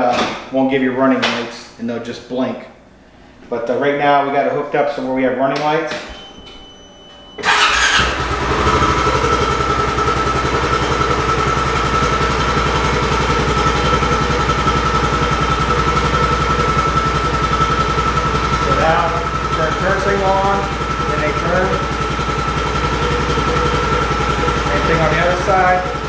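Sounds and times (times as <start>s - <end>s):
engine starting and idling: 7.4s - 26.0s.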